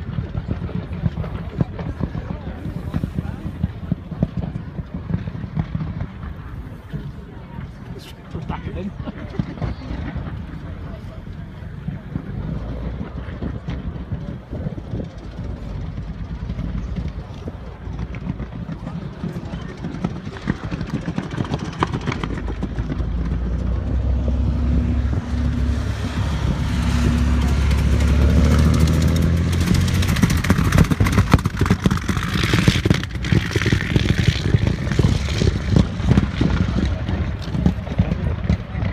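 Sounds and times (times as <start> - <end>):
engine crackling: 0.0 - 38.9
race cars driving past: 8.4 - 38.9.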